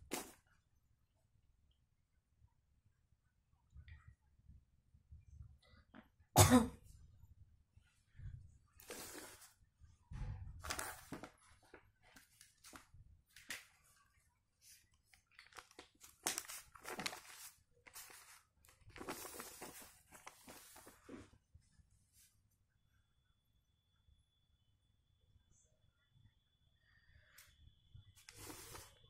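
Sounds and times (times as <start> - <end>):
paper rustling and crinkling: 0.0 - 0.4, 8.8 - 9.6, 10.4 - 21.3, 28.2 - 29.0.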